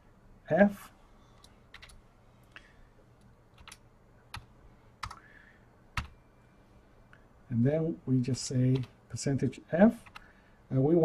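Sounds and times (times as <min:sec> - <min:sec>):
faint low hum: 0:00.0 - 0:11.0
computer keyboard clicks: 0:01.4 - 0:02.0, 0:03.6 - 0:05.2.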